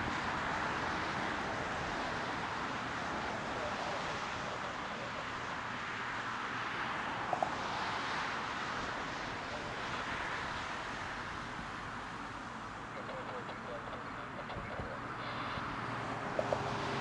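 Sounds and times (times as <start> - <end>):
short faint beeps: 13.0 - 15.7.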